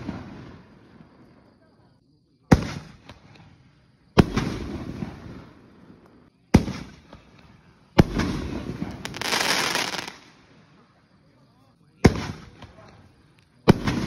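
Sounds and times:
firework bursting overhead: 0.0 - 1.6, 2.4 - 10.8, 11.9 - 14.0.

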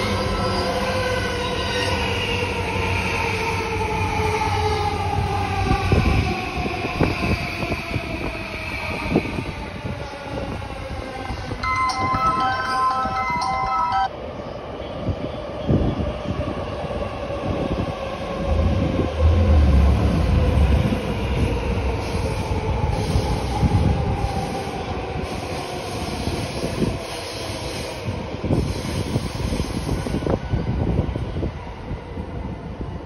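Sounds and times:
train wheels rumbling on rails: 14.7 - 33.0.

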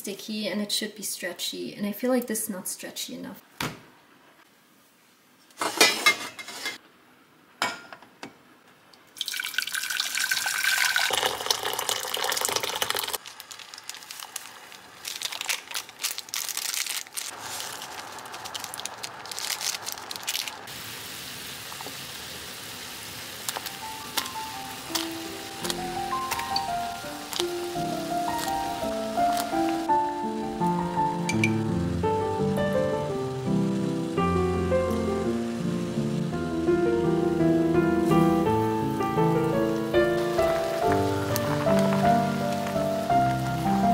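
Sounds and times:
water splashing into sink: 9.2 - 13.2.

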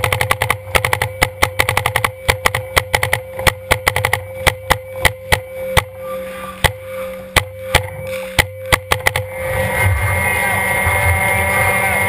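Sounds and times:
paintball markers firing: 0.0 - 5.4, 7.4 - 9.2.

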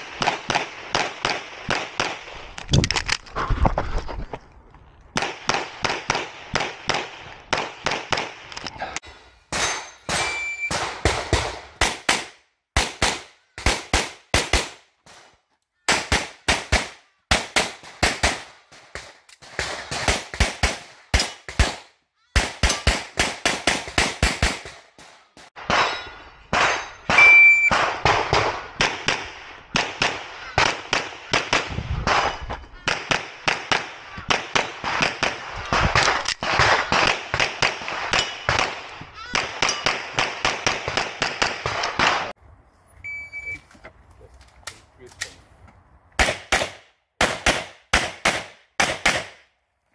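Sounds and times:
pistol shots: 9.5 - 15.2, 15.9 - 42.3, 46.2 - 49.4
brief ringing tone: 10.2 - 10.7, 43.0 - 43.6.

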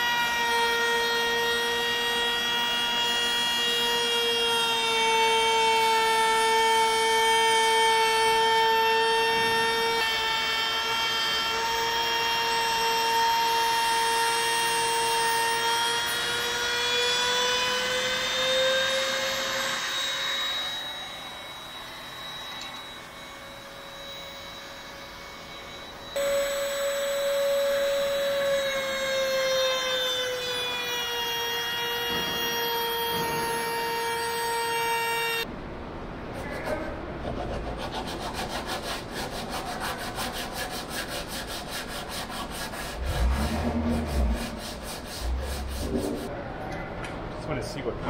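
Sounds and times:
router high whine: 0.0 - 35.5.

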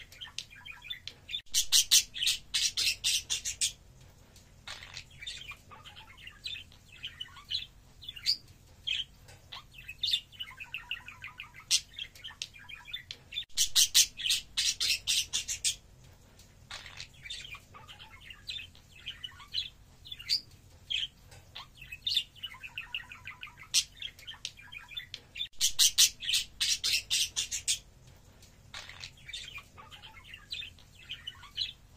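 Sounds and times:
budgerigar chirping: 0.2 - 3.8, 13.6 - 15.8, 21.0 - 27.8, 28.7 - 31.8.

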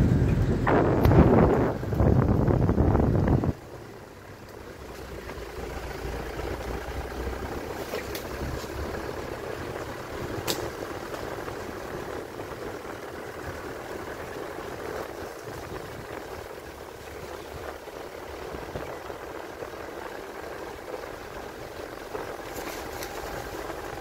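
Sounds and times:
vehicle engine and road rumble: 0.0 - 24.0.

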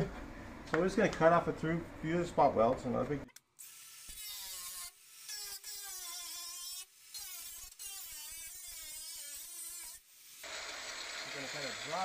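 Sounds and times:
angle grinder cutting metal: 3.6 - 12.0.

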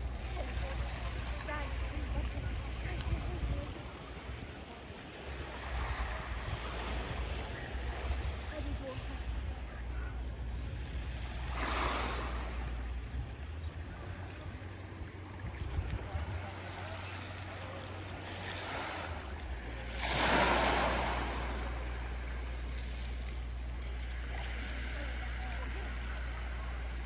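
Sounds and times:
wind rumble on microphone: 0.0 - 27.0
waves washing onto pebble beach: 11.2 - 12.8, 15.7 - 27.0.

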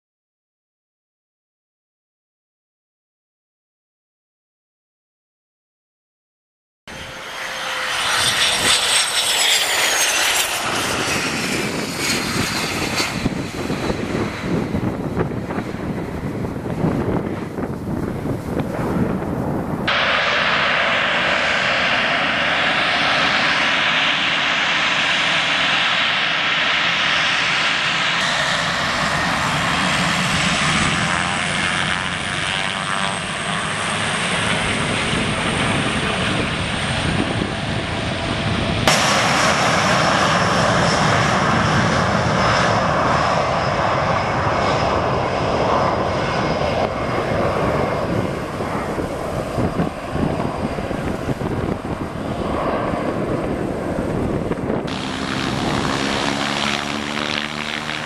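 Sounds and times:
jet engines at high power: 6.9 - 58.0
turboprop engine running: 6.9 - 58.0.

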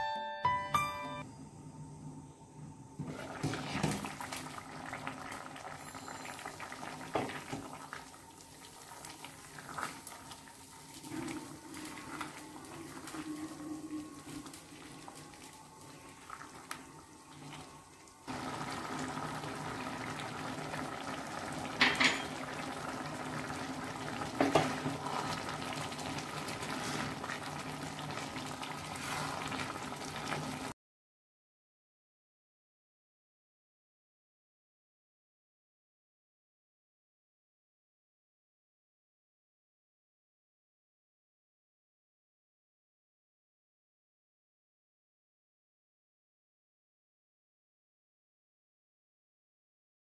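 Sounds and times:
curry simmering and bubbling: 3.1 - 30.7
glass pot lid clattering: 21.8 - 22.4.

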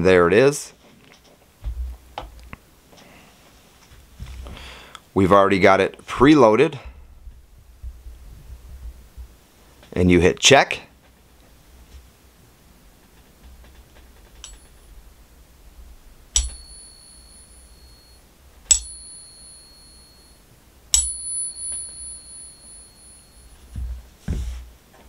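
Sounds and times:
coin ringing when tapped: 16.4 - 23.6.

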